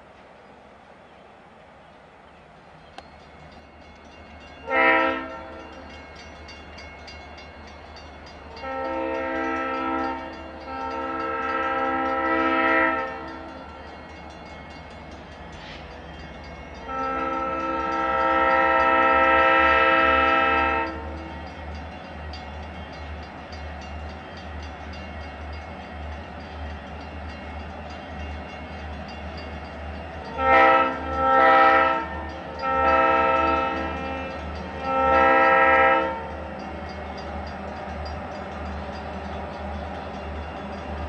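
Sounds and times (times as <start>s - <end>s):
locomotive air horn blasts: 4.6s - 5.7s, 8.6s - 13.5s, 16.8s - 21.2s, 30.3s - 36.6s.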